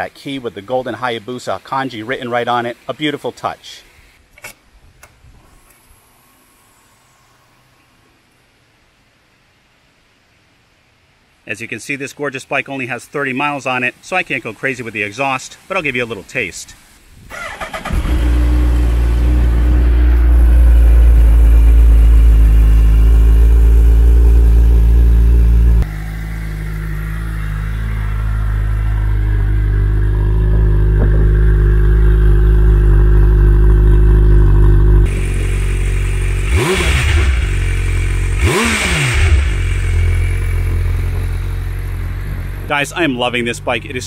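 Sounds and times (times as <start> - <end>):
motorcycle starter cranking: 17.3 - 19.4
motorcycle throttle blips: 17.3 - 43.8
motorcycle engine idling: 17.8 - 44.0.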